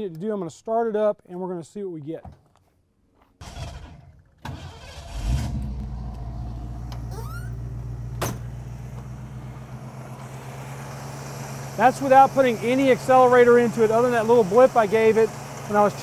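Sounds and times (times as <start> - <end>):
car engine cranking: 3.4 - 15.8
car engine idling: 3.4 - 16.0.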